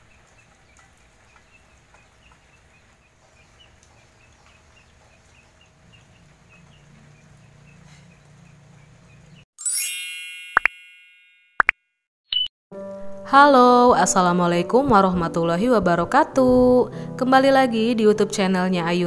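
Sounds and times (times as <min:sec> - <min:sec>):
light rain: 0:00.0 - 0:09.4
high repeating chirp: 0:12.3 - 0:12.5.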